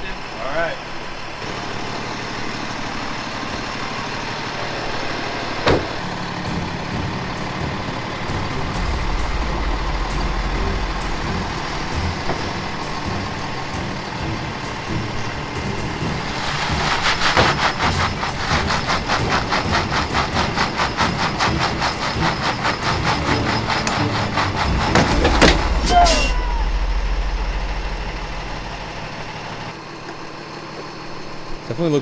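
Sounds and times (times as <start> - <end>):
diesel truck engine pulling: 0.0 - 32.0
rapid clattering: 8.2 - 26.0.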